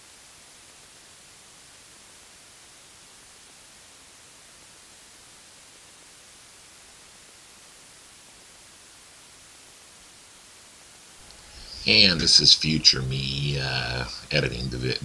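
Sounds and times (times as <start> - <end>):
static hiss: 0.0 - 15.0.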